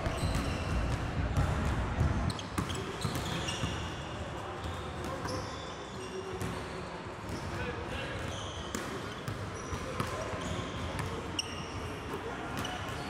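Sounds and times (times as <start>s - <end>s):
basketballs bouncing on gym floor: 0.0s - 3.8s, 8.2s - 11.2s.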